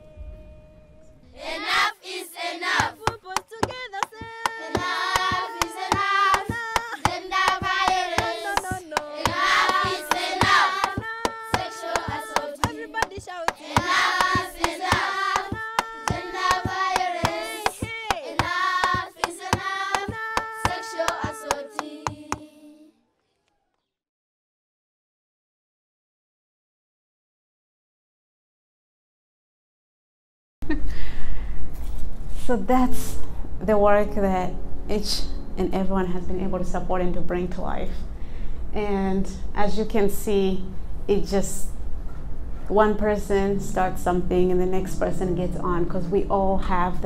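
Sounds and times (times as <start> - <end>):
children's choir singing: 1.3 - 22.9
hand claps: 2.8 - 22.5.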